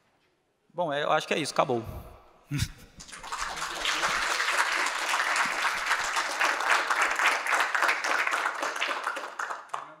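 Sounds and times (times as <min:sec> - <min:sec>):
audience applauding: 0:03.0 - 0:10.0.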